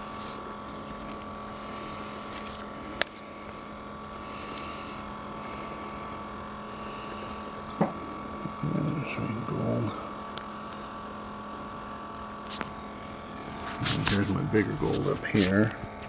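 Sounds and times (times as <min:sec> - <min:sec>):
small motor humming: 0:00.0 - 0:16.0.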